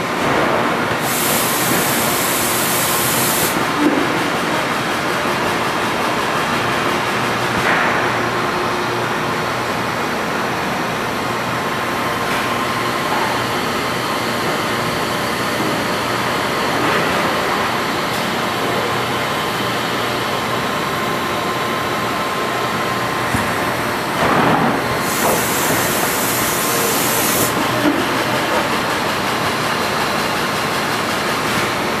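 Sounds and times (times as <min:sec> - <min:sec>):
industrial machinery running: 0:00.0 - 0:32.0
high hiss burst: 0:25.0 - 0:27.6.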